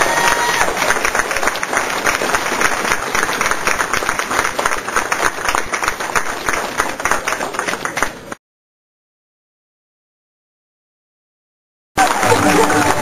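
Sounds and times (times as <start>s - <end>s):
audience applauding: 0.0s - 8.4s, 12.0s - 13.0s.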